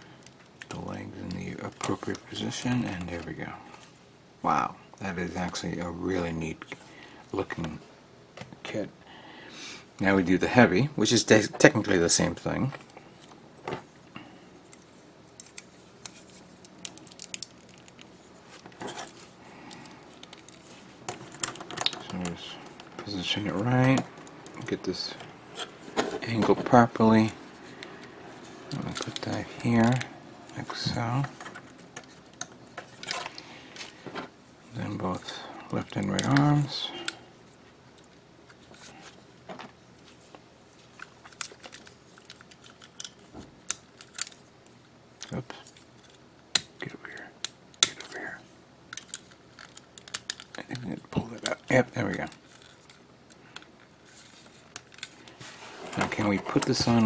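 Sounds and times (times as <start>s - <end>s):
plastic parts clicking: 15.4s - 23.1s, 40.9s - 44.4s, 48.9s - 55.3s
plastic rustling scrape: 54.0s - 57.0s.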